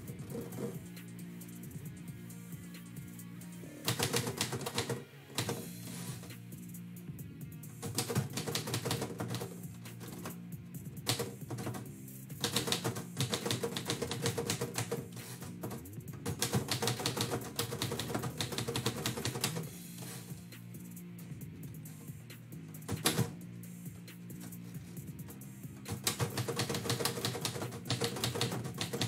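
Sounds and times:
background music with low tones: 0:00.0 - 0:29.0
manual typewriter keys striking: 0:03.8 - 0:05.6, 0:07.8 - 0:10.4, 0:11.0 - 0:11.8, 0:12.4 - 0:19.6, 0:22.9 - 0:23.4, 0:25.9 - 0:29.0.

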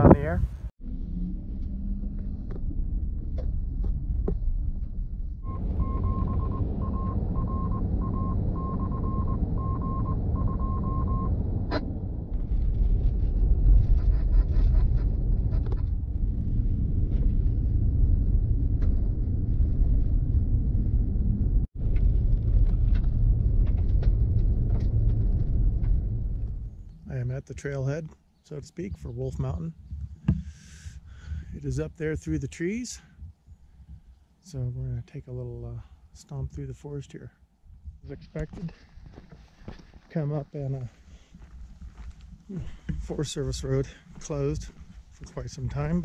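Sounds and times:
road and tyre rumble in cabin: 0:00.2 - 0:27.0
short beeps: 0:05.4 - 0:11.4.

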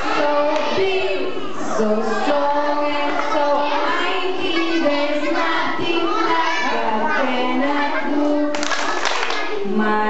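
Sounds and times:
children singing in unison: 0:00.0 - 0:10.0
hand clapping: 0:08.5 - 0:09.6.

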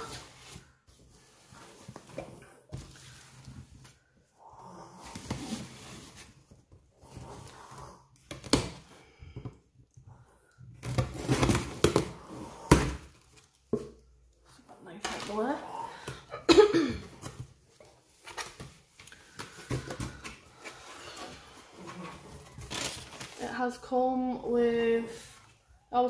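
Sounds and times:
cardboard scraping and rustling: 0:17.2 - 0:23.5.

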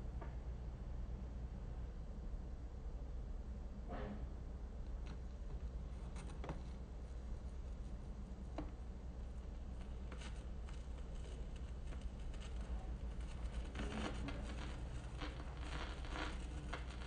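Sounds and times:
steady low hum: 0:00.0 - 0:17.0
vinyl surface crackle and clicks: 0:04.9 - 0:17.0.

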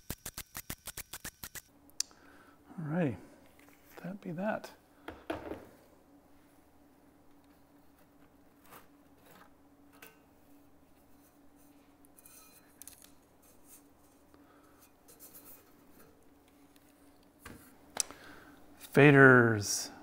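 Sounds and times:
faint steady hum: 0:00.2 - 0:20.0
faint metal plate scrapes: 0:08.6 - 0:12.8, 0:13.4 - 0:16.2.

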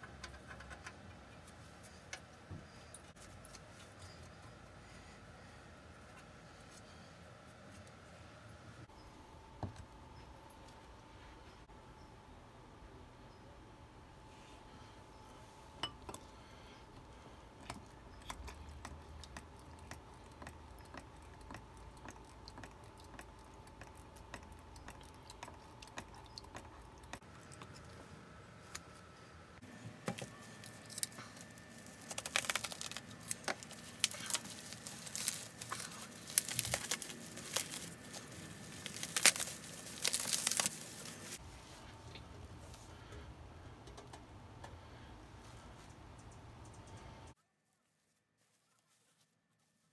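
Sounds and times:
bubble wrap crinkling: 0:30.0 - 0:41.4.

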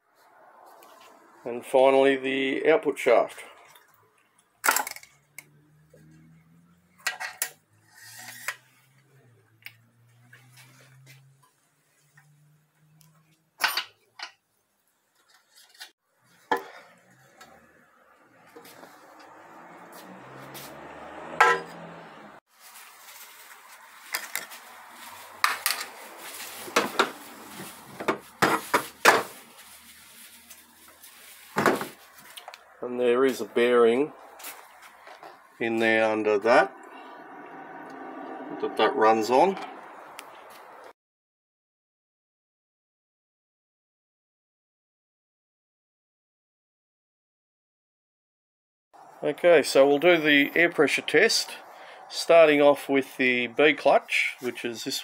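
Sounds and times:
metal scraping: 0:07.0 - 0:09.2.

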